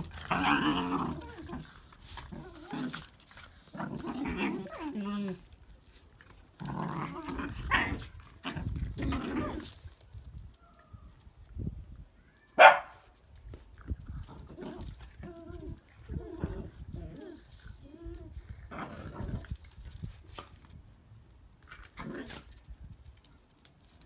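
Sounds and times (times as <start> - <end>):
dogs grumbling in play: 0.0 - 9.9, 13.9 - 20.0
dog barking: 12.6 - 13.0.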